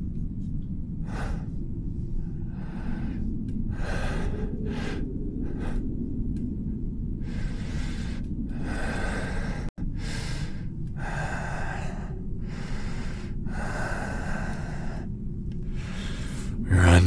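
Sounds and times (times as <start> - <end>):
steady low rumble: 0.0 - 17.0
heavy breathing: 7.2 - 17.0.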